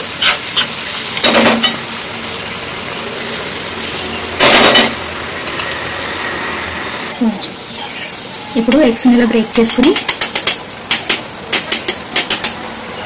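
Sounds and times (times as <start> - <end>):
masala sizzling in oil: 0.0 - 13.0
spoon scraping and knocking pan: 0.2 - 1.9, 9.7 - 12.6.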